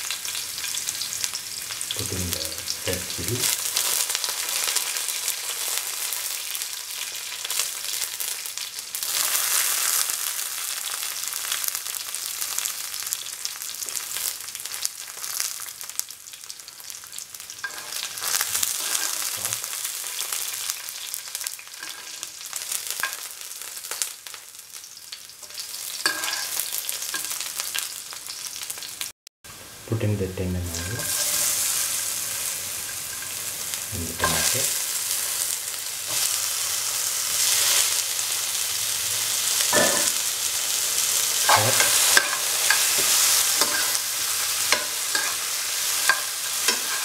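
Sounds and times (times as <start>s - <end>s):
vegetables sizzling in hot oil: 0.0s - 47.0s
spoon knocking and scraping pan: 17.6s - 19.4s, 21.7s - 22.3s, 26.0s - 27.4s, 30.7s - 31.7s, 39.7s - 40.2s, 41.4s - 47.0s.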